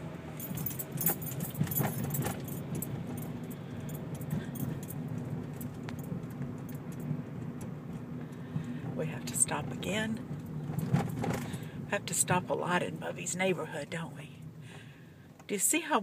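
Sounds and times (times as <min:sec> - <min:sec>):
car engine and tyre drone: 0:00.0 - 0:11.9
keys jingling: 0:00.4 - 0:05.0.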